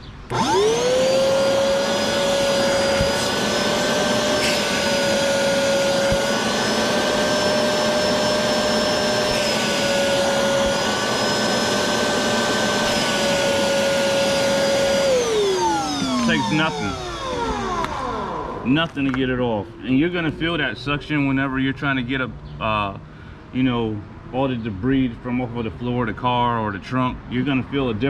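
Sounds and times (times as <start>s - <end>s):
shop vacuum motor whine: 0.3s - 21.0s.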